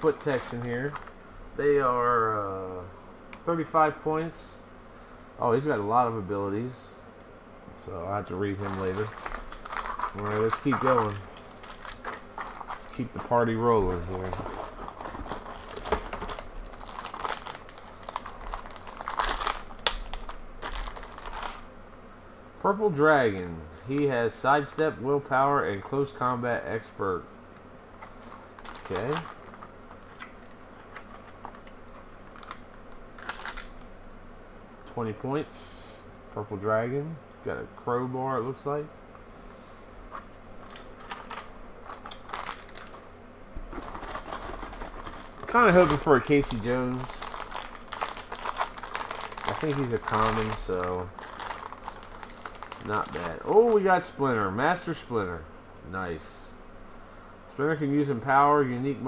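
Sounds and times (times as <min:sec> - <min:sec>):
plastic pack crinkling and tearing: 0:00.0 - 0:01.2, 0:08.2 - 0:21.7, 0:28.0 - 0:33.8, 0:40.1 - 0:43.0, 0:43.7 - 0:54.0.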